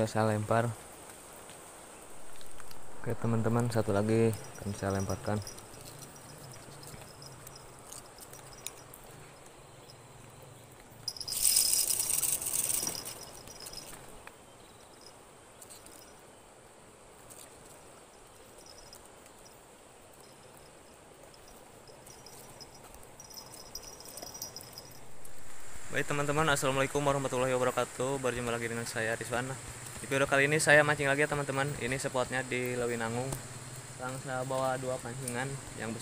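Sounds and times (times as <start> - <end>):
insects chirring: 0.0 - 36.0
fishing line hissing off reel: 11.1 - 14.1.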